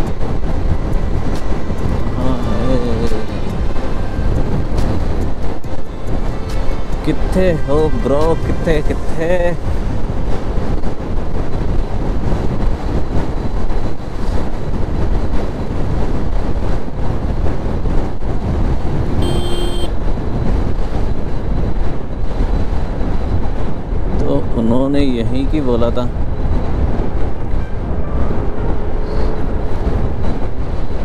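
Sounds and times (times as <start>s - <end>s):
wind buffeting microphone: 0.0s - 31.0s
scooter engine and tyre noise: 9.7s - 24.1s, 26.2s - 31.0s
short beep: 19.2s - 19.9s.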